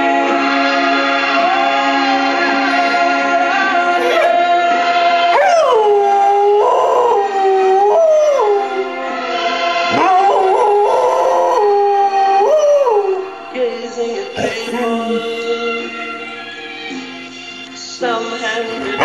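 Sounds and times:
dog howling: 3.6s - 13.5s.

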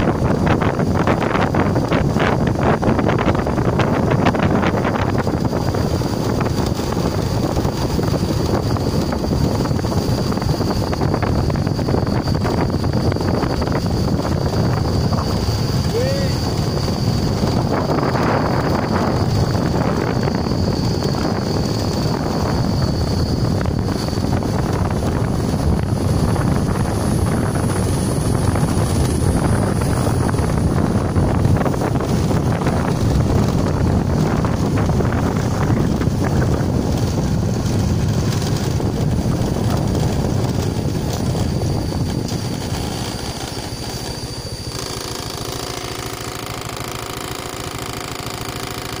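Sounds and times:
vehicle engine running: 0.0s - 49.0s
wind rushing over microphone: 0.0s - 49.0s
steady tones: 41.4s - 49.0s.

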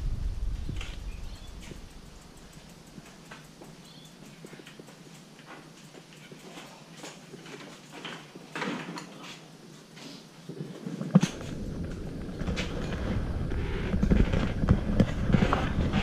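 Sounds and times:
steady low rumbling: 0.0s - 4.2s, 11.3s - 16.0s
bicycles clicking and knocking: 0.0s - 9.3s, 11.2s - 16.0s.

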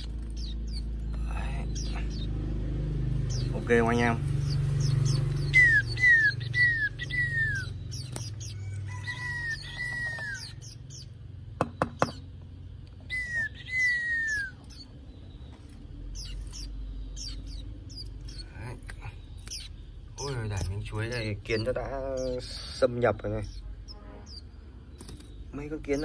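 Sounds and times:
thin high bird chirps: 0.0s - 26.0s
falling whistled bird notes: 4.8s - 10.6s, 13.1s - 14.9s.

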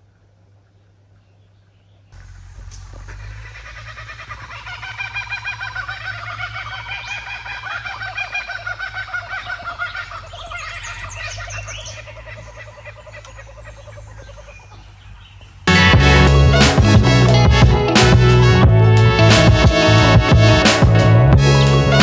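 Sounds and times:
birds calling in chorus: 0.6s - 15.7s
steady low hum: 2.1s - 22.0s.

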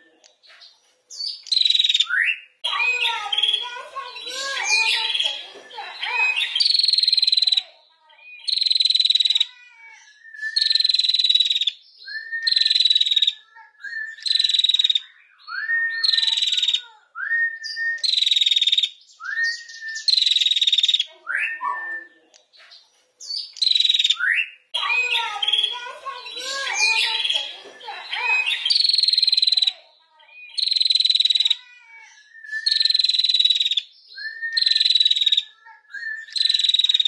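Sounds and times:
bird rising chirps: 23.2s - 29.7s.

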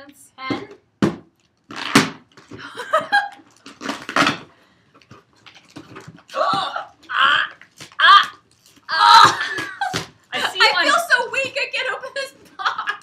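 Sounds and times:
box handling noise: 0.6s - 6.6s
tape and cardboard ripping: 1.0s - 2.6s, 3.2s - 10.2s.

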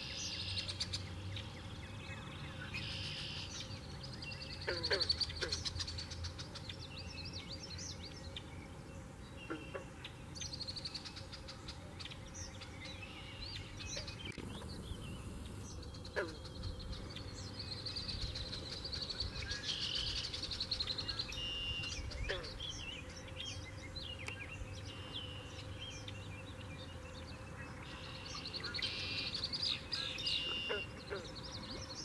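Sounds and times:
marsh birds chirping: 0.0s - 32.0s
wind rumble on microphone: 21.7s - 22.6s
bird trill: 27.8s - 31.3s.

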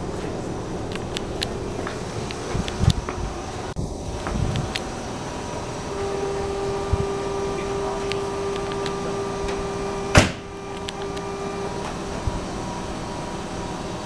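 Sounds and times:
steady electronic tone: 0.0s - 14.0s
sharp knock: 10.1s - 10.4s.

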